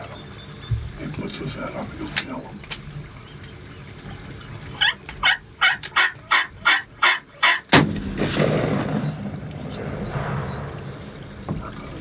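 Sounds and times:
turkey calling notes: 0:00.0 - 0:07.7
shotgun blast: 0:07.7 - 0:11.0.

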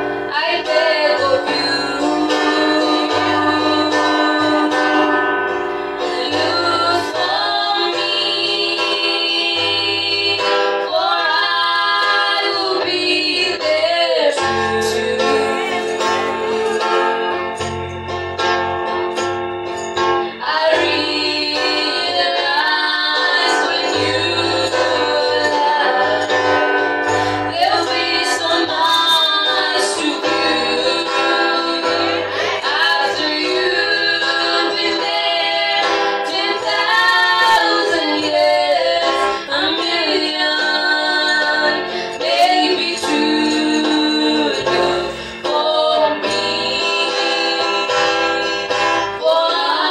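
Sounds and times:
guitar playing: 0:00.0 - 0:49.9
girls singing into microphones: 0:00.2 - 0:05.3, 0:05.9 - 0:17.6, 0:20.4 - 0:49.9
bass line: 0:13.0 - 0:20.2.

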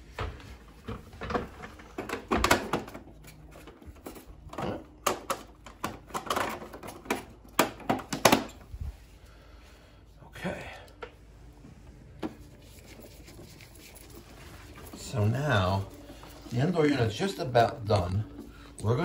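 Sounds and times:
plastic cover clicks and knocks: 0:05.0 - 0:08.5.

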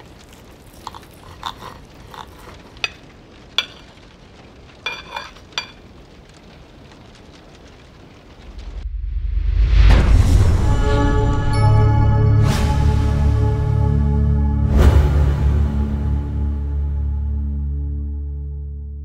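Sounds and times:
faint steady hiss: 0:00.0 - 0:08.9
cutlery clinking on plate: 0:00.8 - 0:04.0, 0:04.9 - 0:05.8.

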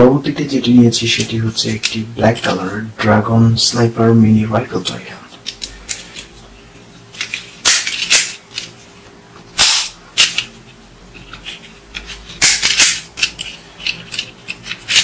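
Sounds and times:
plastic toy clicks and knocks: 0:11.4 - 0:15.0.

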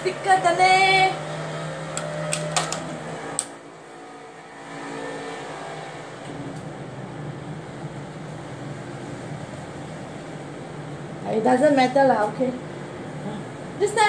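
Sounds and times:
appliance being handled clicks: 0:02.0 - 0:03.5.

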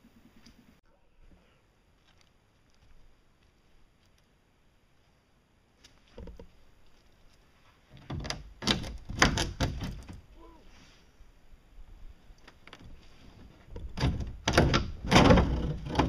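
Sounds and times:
knocks and thumps of boat hull pieces: 0:08.0 - 0:10.3, 0:13.6 - 0:16.0.

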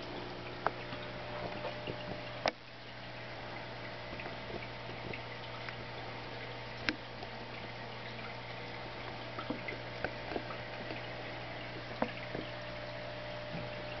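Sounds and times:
aquarium water bubbling: 0:00.0 - 0:14.0
steady low hum: 0:00.0 - 0:14.0
water pops and drips: 0:00.0 - 0:14.0.

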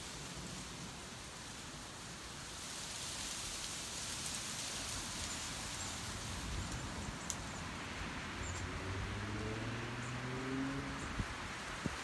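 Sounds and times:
wind through tree leaves: 0:00.0 - 0:12.0
wind-driven rain: 0:00.0 - 0:12.0
faint ticks: 0:06.7 - 0:07.5.

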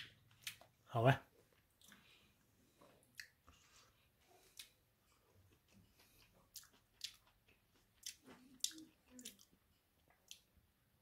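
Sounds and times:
faint chewing: 0:01.4 - 0:10.7
mouth clicks and smacks: 0:03.0 - 0:03.6, 0:05.5 - 0:10.5.

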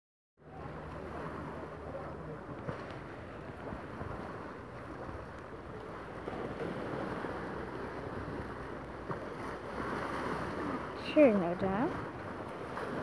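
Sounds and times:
small waves washing onto shore: 0:00.4 - 0:13.0.

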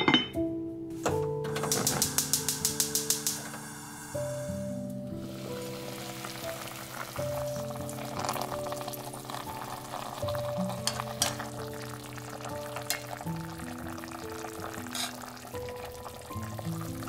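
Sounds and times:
soft background music: 0:00.0 - 0:17.0
meat sizzling in a pot: 0:01.6 - 0:17.0
metal tongs clicking on pot: 0:01.7 - 0:03.4, 0:10.8 - 0:11.5, 0:14.9 - 0:15.2.

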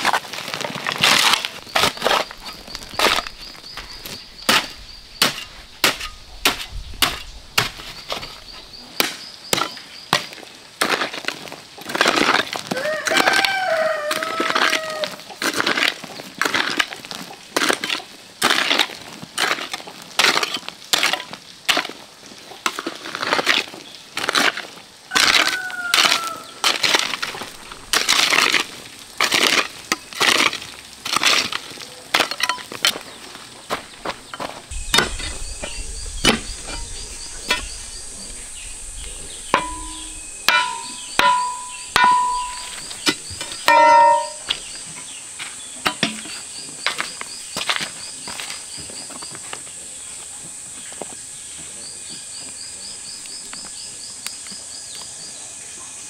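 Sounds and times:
garden hoe chopping dirt: 0:00.8 - 0:08.4, 0:09.0 - 0:17.0, 0:17.6 - 0:22.0, 0:22.6 - 0:33.1, 0:39.5 - 0:44.8
high insect drone: 0:33.5 - 0:56.0.

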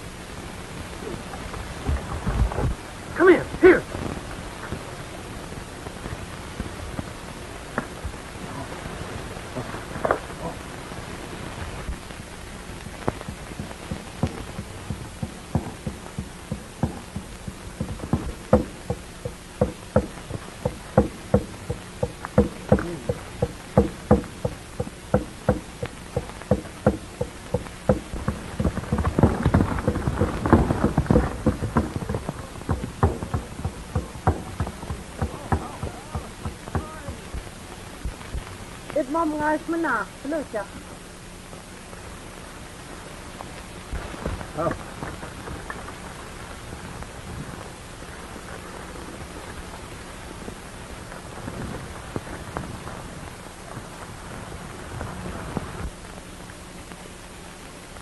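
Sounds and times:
film soundtrack hiss: 0:00.0 - 0:58.0
horse hoofbeats: 0:13.2 - 0:37.4.

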